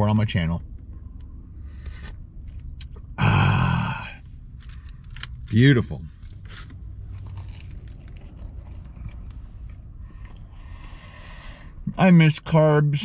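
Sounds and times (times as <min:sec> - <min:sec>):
low steady hum: 0:00.0 - 0:13.0
man chewing bagel: 0:06.3 - 0:11.0.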